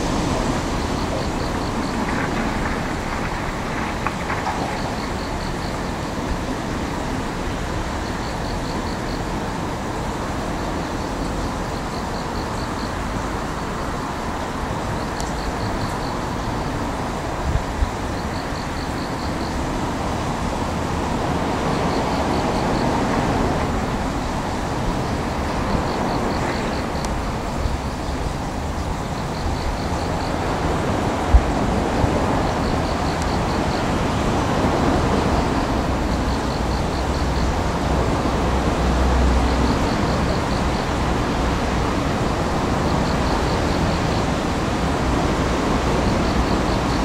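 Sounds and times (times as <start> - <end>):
distant heavy machinery rumble: 0.0 - 9.0.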